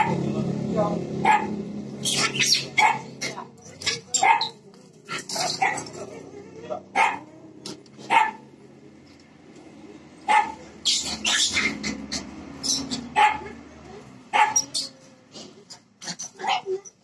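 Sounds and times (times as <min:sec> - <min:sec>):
young dog barking: 0:01.2 - 0:01.6, 0:02.2 - 0:03.4, 0:04.2 - 0:04.6, 0:05.4 - 0:06.3, 0:06.9 - 0:07.3, 0:08.0 - 0:08.5, 0:10.2 - 0:12.0, 0:13.0 - 0:13.7, 0:14.3 - 0:14.9, 0:16.3 - 0:16.8.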